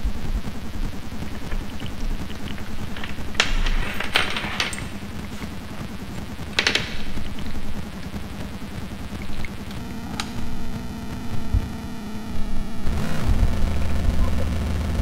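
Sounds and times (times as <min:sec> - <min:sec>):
noisy electronic synthesizer drone: 0:00.0 - 0:15.0
sharp clicks: 0:01.3 - 0:10.8.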